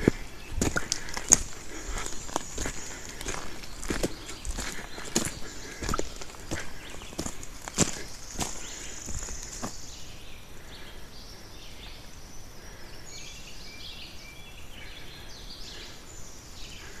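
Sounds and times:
footsteps on dirt trail: 0.0 - 10.0
wildlife chirping calls: 0.0 - 17.0.

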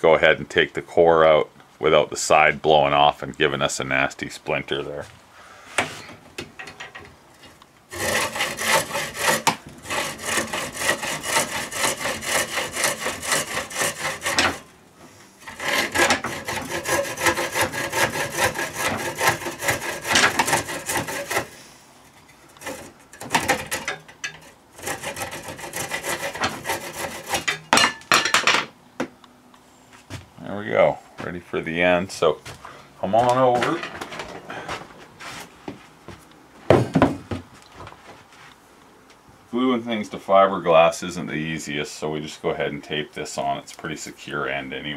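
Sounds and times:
hacksaw cutting rod: 7.9 - 14.7, 15.4 - 21.6, 22.6 - 27.9.

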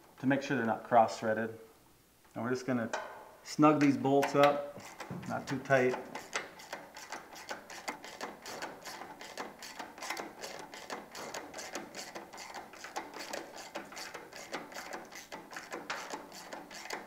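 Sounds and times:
hand ratchet clicking: 4.2 - 17.0.

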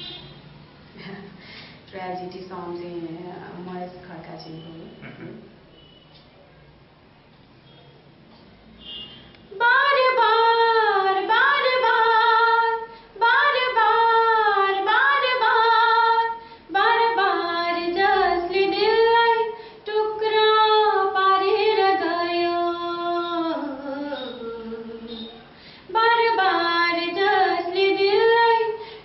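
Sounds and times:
woman singing unaccompanied: 9.5 - 28.8.

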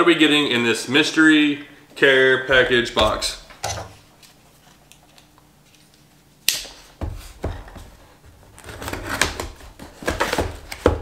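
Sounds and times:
cardboard and tape scratching and rustling: 6.8 - 11.0.

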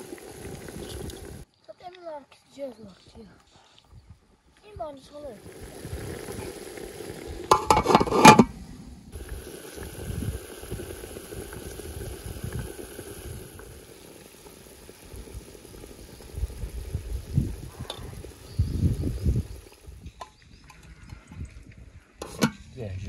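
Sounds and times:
soup bubbling at the boil: 0.0 - 1.5, 5.1 - 22.5
pot lid clattering: 7.5 - 8.5, 22.2 - 22.6.

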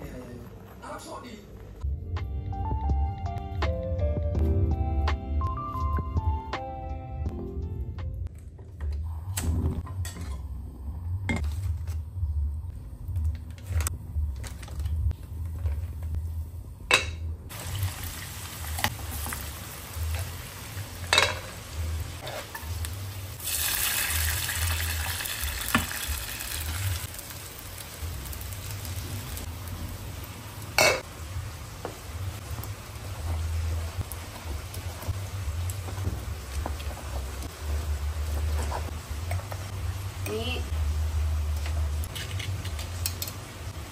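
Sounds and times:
loud hissing sizzle: 17.5 - 41.6
pots and utensils knocking: 21.1 - 21.5.

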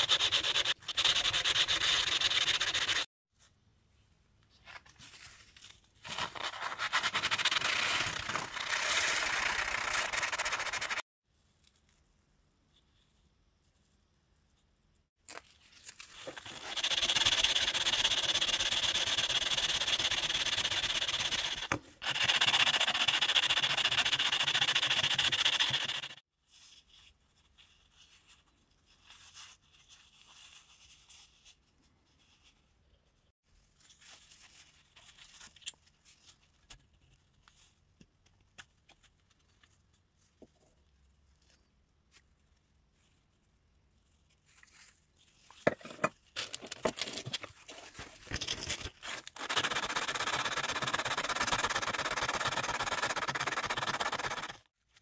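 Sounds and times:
metal rubbed on sandpaper: 0.0 - 3.1, 6.8 - 11.0, 16.4 - 26.2.

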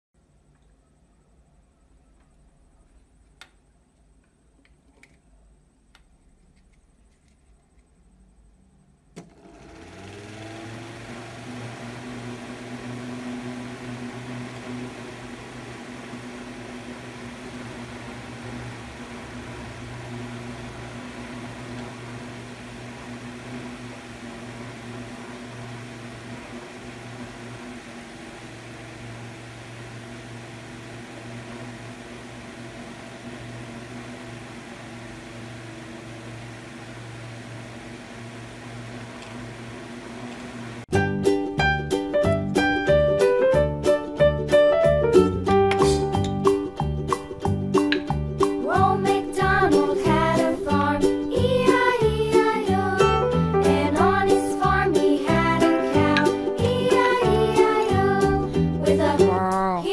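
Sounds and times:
electric fan motor humming: 9.2 - 40.9, 45.1 - 59.9.

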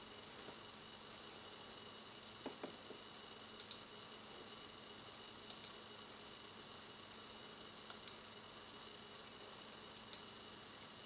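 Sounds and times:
computer mouse clicks: 3.6 - 3.9, 5.1 - 5.8, 7.9 - 8.3, 9.9 - 10.3.

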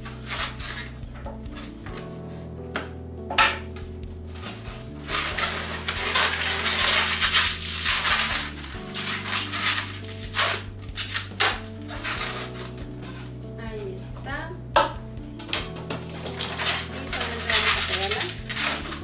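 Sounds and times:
background music: 0.0 - 19.0
balloon rubbing and squeaking: 4.3 - 13.4.

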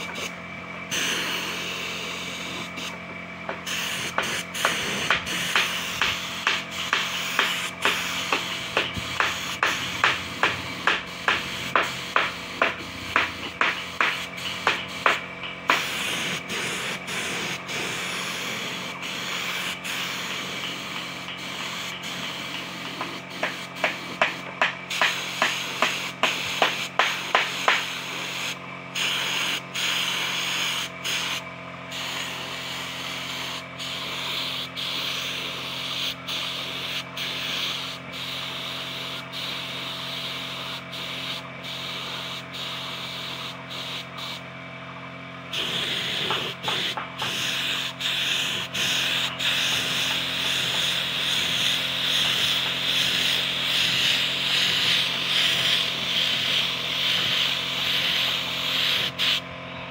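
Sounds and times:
spray gun hissing: 0.0 - 3.0, 3.6 - 44.4, 45.5 - 59.4
steady low hum: 0.0 - 59.9.

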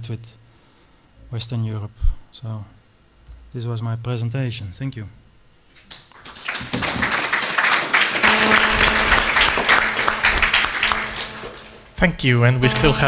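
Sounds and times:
audience applauding: 5.9 - 12.0, 12.7 - 13.0.

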